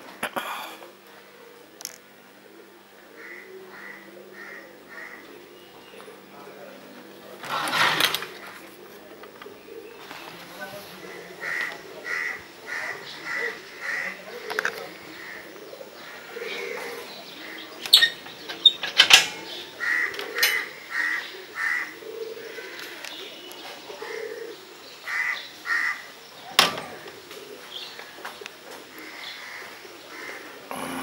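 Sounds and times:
crows cawing: 3.0 - 6.2, 10.9 - 18.7, 19.4 - 31.0.

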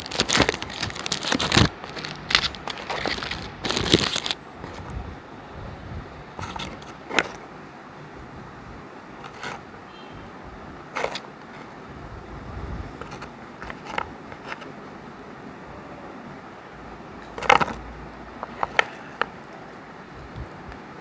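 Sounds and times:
biscuits tapping and clicking: 0.0 - 4.9, 17.2 - 17.8, 18.4 - 19.6.

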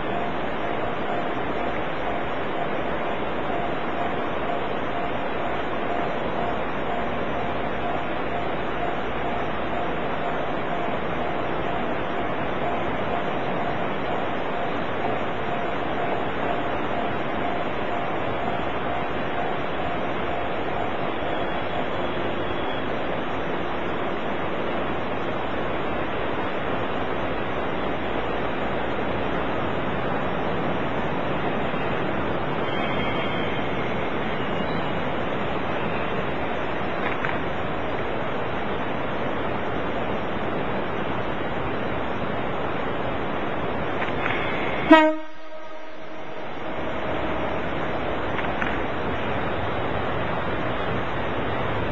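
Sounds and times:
steady rushing noise: 0.0 - 51.9
train horn: 44.7 - 46.4.

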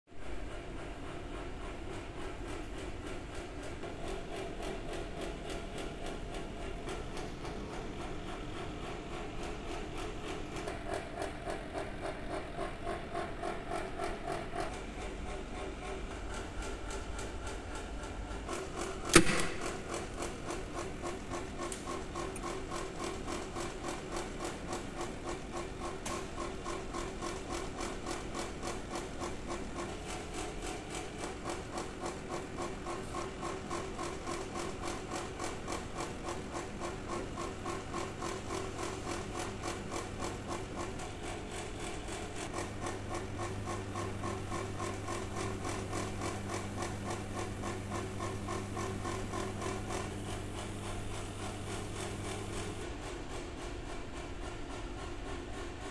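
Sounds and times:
sharp click: 19.0 - 19.9.

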